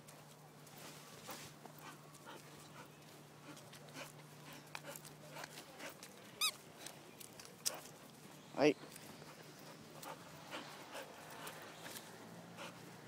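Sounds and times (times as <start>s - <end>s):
faint rustling and handling: 0.0s - 10.0s.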